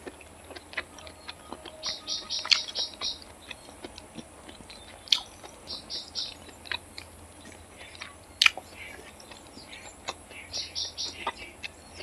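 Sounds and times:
person chewing with wet smacks: 0:00.0 - 0:12.0.

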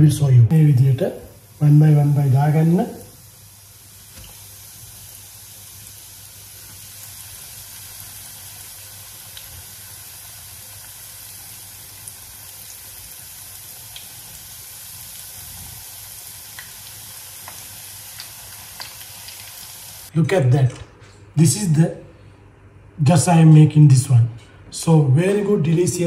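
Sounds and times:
patties sizzling in oil: 0:01.2 - 0:20.1.

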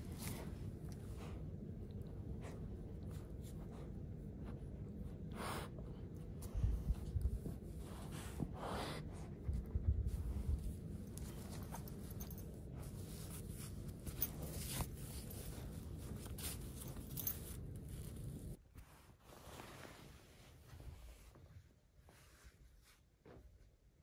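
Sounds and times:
hand rubbing dog fur: 0:00.0 - 0:23.4.

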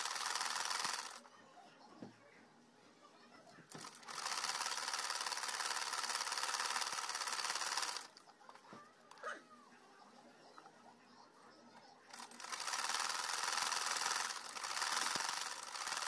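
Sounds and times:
sewing machine running: 0:00.0 - 0:01.2, 0:03.8 - 0:08.2, 0:12.1 - 0:16.0.

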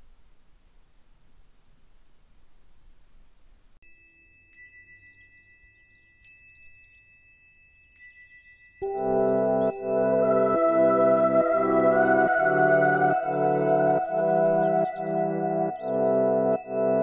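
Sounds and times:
faint hiss: 0:00.0 - 0:04.4
soft chiming music: 0:03.8 - 0:17.0
ambient music with sustained chords: 0:08.8 - 0:17.0.

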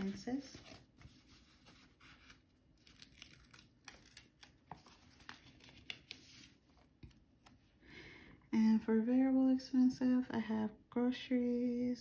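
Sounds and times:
stickers peeling and crinkling: 0:00.0 - 0:07.2.

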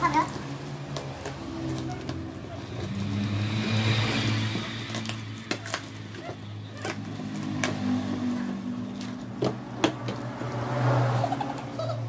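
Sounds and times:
cardboard box clicks and knocks: 0:04.5 - 0:08.4, 0:09.0 - 0:10.6.

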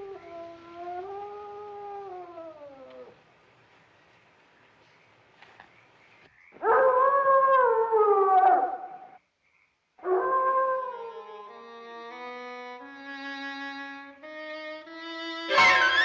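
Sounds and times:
bowed string music: 0:11.3 - 0:16.0.

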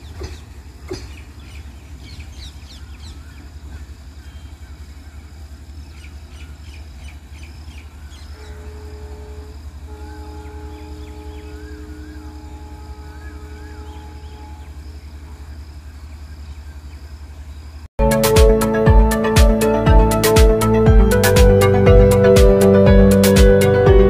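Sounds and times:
train rumbling on track: 0:00.0 - 0:17.5
birds calling: 0:00.0 - 0:17.8
distant two-tone train horn: 0:08.3 - 0:15.3.

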